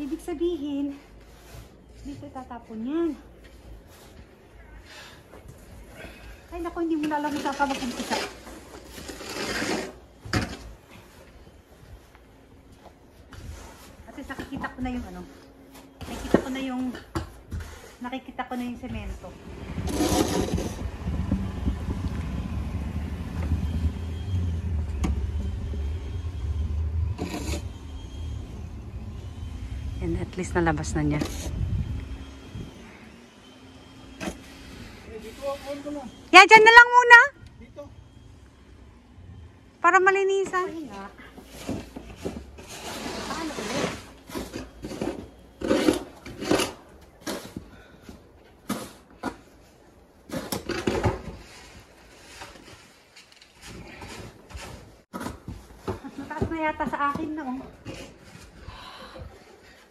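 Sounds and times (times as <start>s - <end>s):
snow shovel scraping snow: 7.2s - 10.1s, 17.6s - 21.2s, 26.5s - 28.2s, 34.4s - 36.2s, 41.5s - 47.6s.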